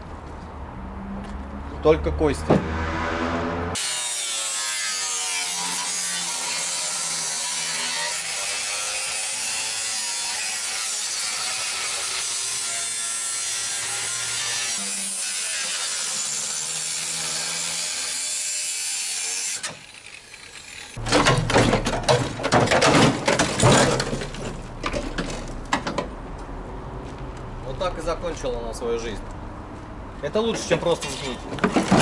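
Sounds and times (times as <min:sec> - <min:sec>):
angle grinder cutting steel: 0:03.8 - 0:21.1.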